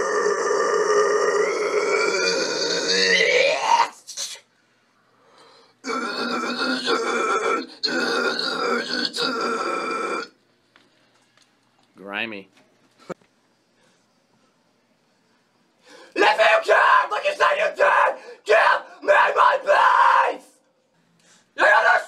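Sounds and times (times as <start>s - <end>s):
man screaming metal vocals: 0.0s - 4.2s, 5.8s - 10.3s, 16.2s - 20.6s, 21.6s - 22.0s.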